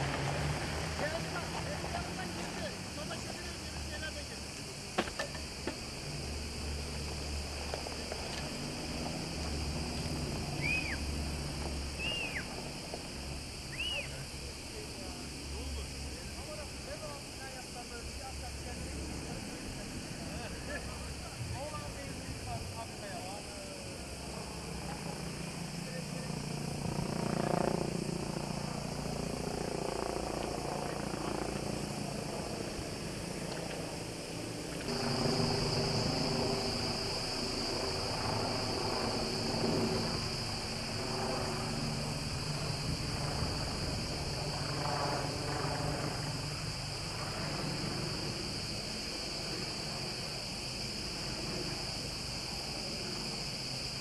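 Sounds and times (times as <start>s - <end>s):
helicopter engine and rotor drone: 0.0s - 54.0s
high-pitched insect chorus: 0.0s - 54.0s
short rising and falling whistles: 10.5s - 11.1s, 12.0s - 12.5s, 13.7s - 14.2s.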